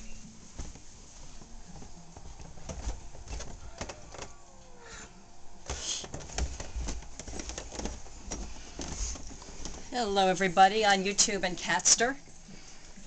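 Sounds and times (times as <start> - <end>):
footsteps on carpeted stairs: 0.2 - 4.5, 5.6 - 10.4
handheld camera rubbing and bumping: 5.7 - 9.9.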